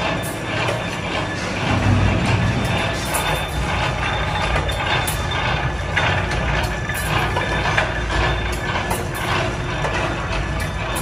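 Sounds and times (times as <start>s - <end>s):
machinery rumbling: 0.0s - 11.0s
metallic clatter: 0.0s - 11.0s.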